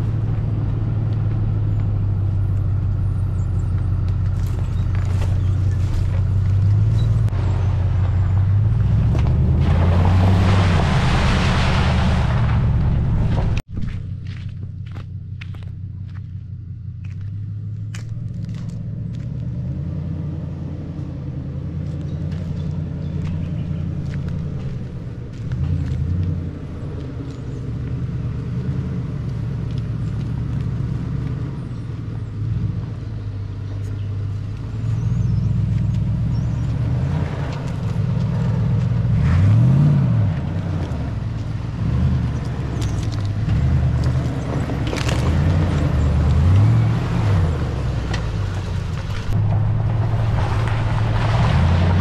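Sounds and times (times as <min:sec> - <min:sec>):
vehicle engine running while driving: 0:00.0 - 0:52.0.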